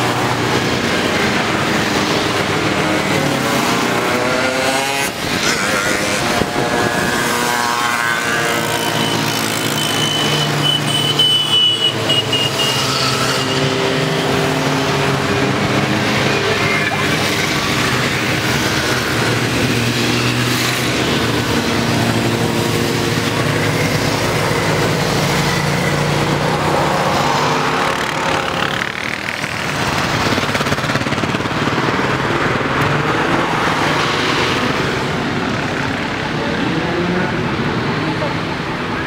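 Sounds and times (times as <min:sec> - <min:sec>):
motorcycles riding past: 0:00.0 - 0:39.0.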